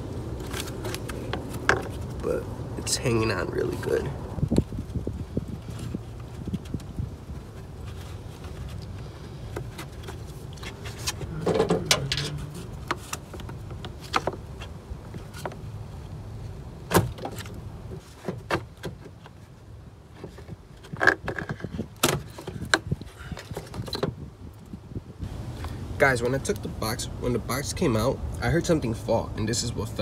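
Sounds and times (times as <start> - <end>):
low steady rumble: 0.0 - 18.1.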